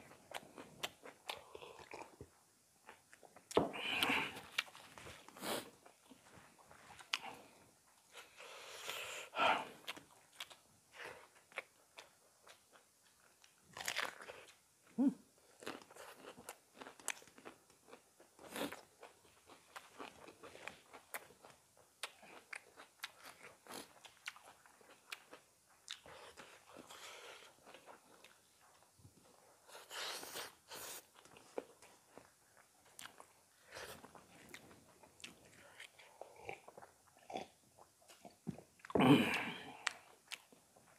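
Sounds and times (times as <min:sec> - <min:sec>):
wet chewing and lip smacking: 0:15.5 - 0:39.0, 0:39.8 - 0:40.9.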